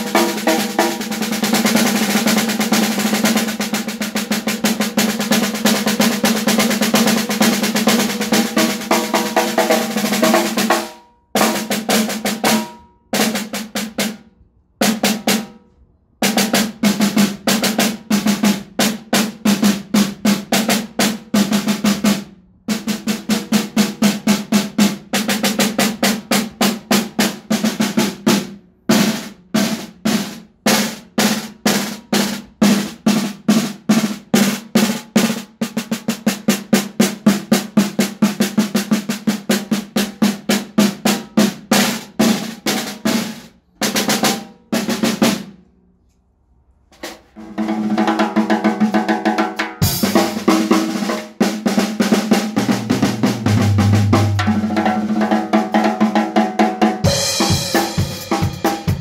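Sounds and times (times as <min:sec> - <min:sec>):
snare drum roll and hits: 0:47.0 - 0:59.0.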